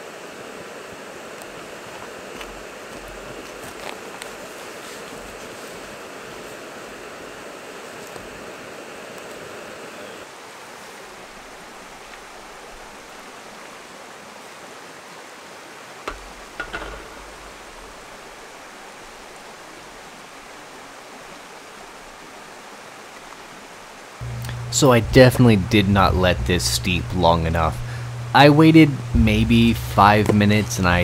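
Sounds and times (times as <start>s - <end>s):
creek rushing: 0.0s - 30.9s
gas burner hissing: 24.2s - 31.0s.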